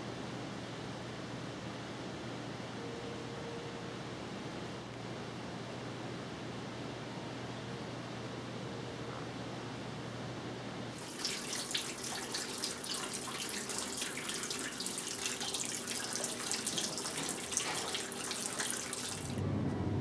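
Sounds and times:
running splashing water: 11.0s - 19.4s.

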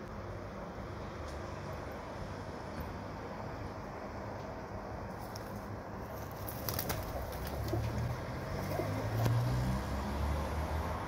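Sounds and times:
pigeons pecking on ledge: 5.2s - 9.4s
pigeons cooing: 6.3s - 9.4s.

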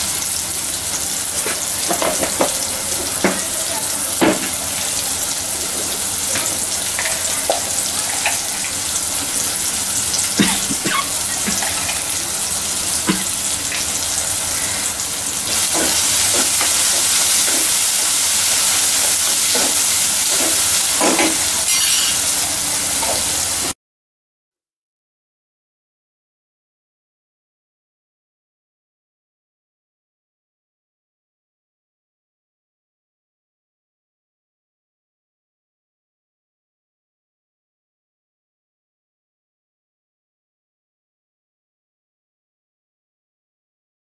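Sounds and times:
vegetables sizzling in hot oil: 0.0s - 23.8s
oil popping and crackling: 0.1s - 23.7s.

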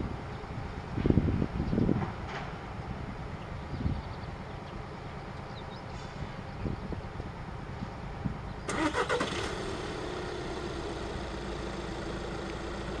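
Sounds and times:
engine cranking and running: 8.7s - 13.0s.

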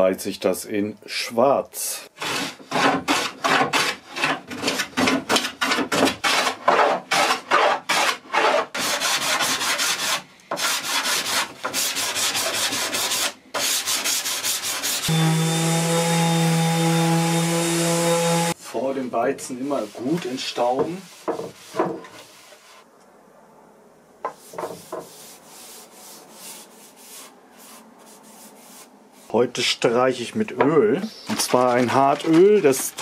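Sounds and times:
hand sanding wood: 2.2s - 18.7s, 19.6s - 22.9s, 24.3s - 29.3s
orbital sander humming: 15.0s - 18.6s.

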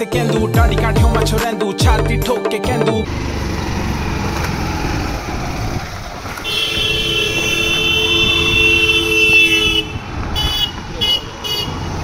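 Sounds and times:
road traffic rumble: 3.0s - 12.0s
vehicle horn long blast: 6.4s - 11.8s.

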